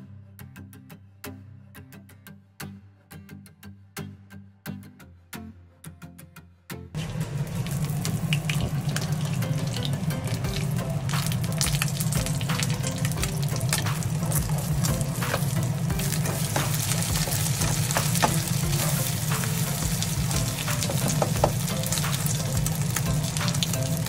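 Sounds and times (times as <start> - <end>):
eggs sizzling in oil: 7.0 - 24.0.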